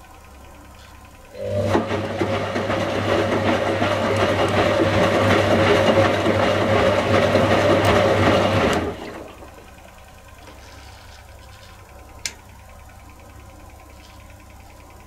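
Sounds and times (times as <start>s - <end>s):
washing machine drum turning: 1.4s - 9.7s.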